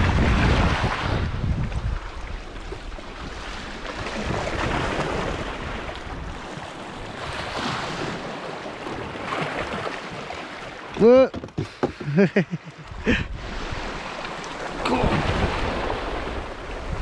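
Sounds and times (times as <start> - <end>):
wind buffeting microphone: 0.0 - 8.2, 12.9 - 17.0
sea waves washing onto shore: 0.0 - 17.0.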